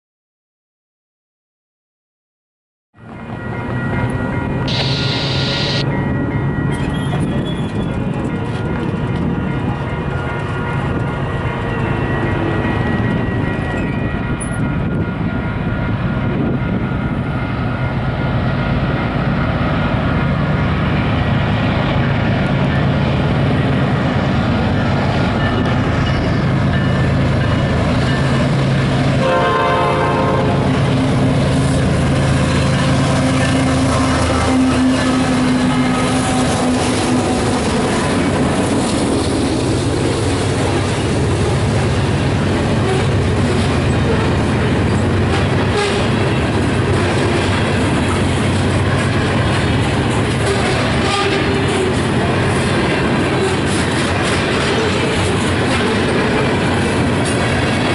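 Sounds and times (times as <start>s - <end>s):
diesel locomotives running: 3.0s - 57.9s
train air horn blast: 4.7s - 5.8s, 29.2s - 30.7s, 45.3s - 46.2s, 50.4s - 51.9s
train wheels clicking on rails: 30.8s - 57.9s.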